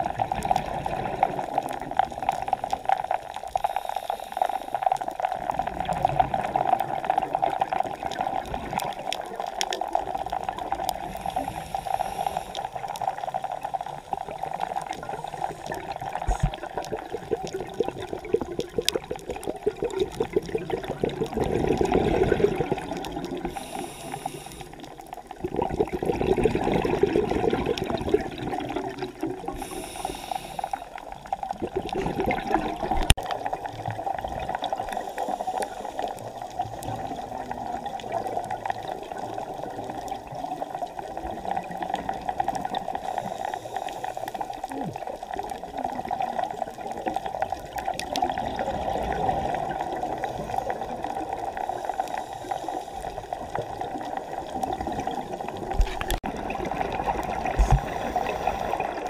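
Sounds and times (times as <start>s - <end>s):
exhaled bubbles rushing: 0.0s - 3.5s, 4.9s - 59.0s
regulator inhale hisses: 3.6s - 4.9s, 11.0s - 12.9s, 23.4s - 25.0s, 29.5s - 31.0s, 34.9s - 36.4s, 43.0s - 44.6s, 51.6s - 53.4s.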